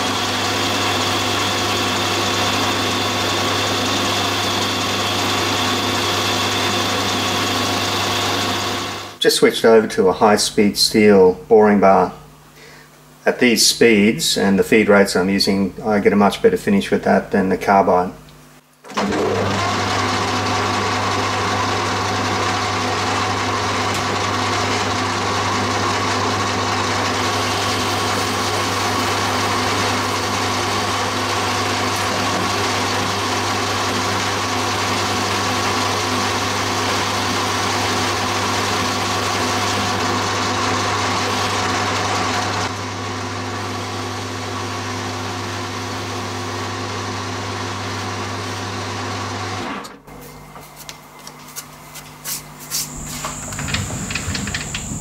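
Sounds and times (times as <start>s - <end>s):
lathe cutting metal: 0.0s - 9.2s, 18.9s - 49.6s, 52.8s - 55.0s
motor hum: 49.9s - 55.0s.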